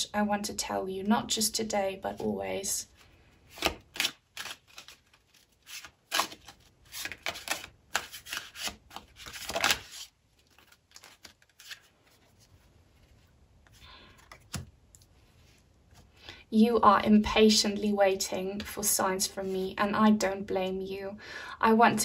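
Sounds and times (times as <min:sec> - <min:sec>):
cards riffling and flicking: 0:03.5 - 0:12.4, 0:13.7 - 0:15.1.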